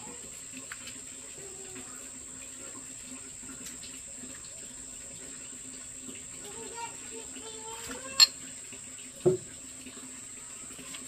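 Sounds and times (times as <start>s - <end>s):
water running: 0.0s - 11.0s.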